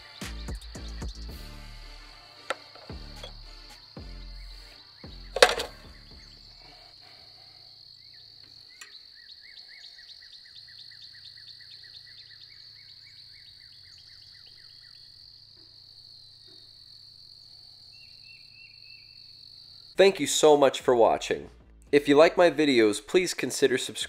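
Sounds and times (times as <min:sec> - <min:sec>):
insect drone: 0:02.1 - 0:20.0.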